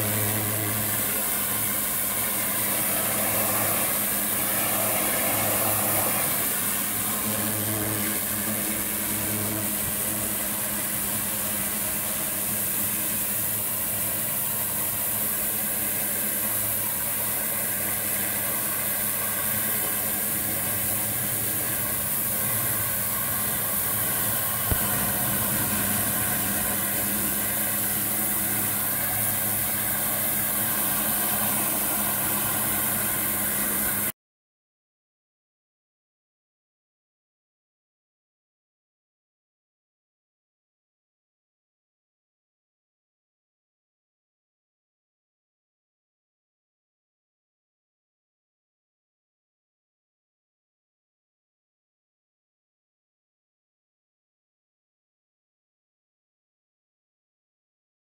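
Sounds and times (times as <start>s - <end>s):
pressure washer jet hissing: 0.0s - 34.1s
pump motor humming: 0.0s - 34.1s.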